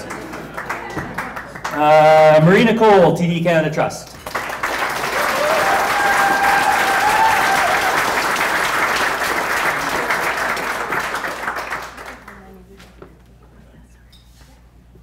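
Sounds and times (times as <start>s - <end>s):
audience applauding: 0.0s - 2.4s, 4.2s - 12.5s
person cheering: 5.2s - 8.1s.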